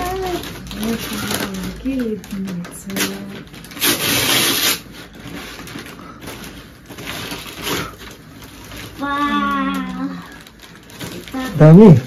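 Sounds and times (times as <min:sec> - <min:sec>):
paper bag and plastic crinkling: 0:00.0 - 0:12.0
loud crackling burst: 0:03.7 - 0:04.9.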